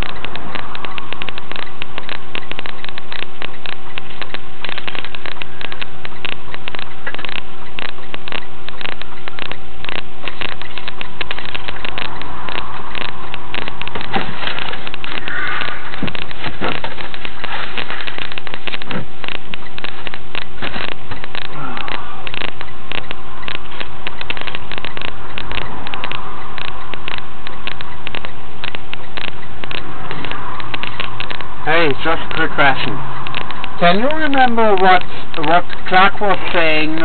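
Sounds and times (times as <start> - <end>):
dense crackling: 0.0 - 37.0
truck cab drone: 0.0 - 37.0.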